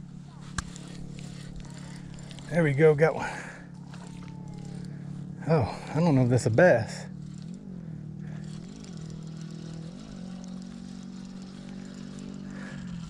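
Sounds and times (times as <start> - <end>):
fishing reel gear whir: 0.0 - 13.0.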